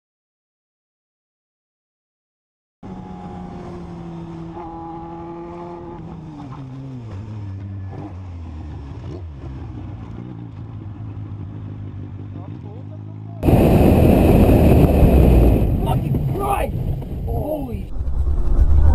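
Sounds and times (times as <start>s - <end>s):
motorcycle engine running: 2.9s - 17.4s.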